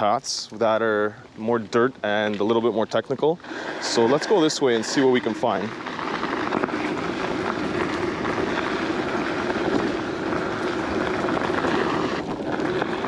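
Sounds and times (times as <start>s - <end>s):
tyres crunching over gravel: 0.0s - 13.0s
electric motor hum: 3.8s - 13.0s.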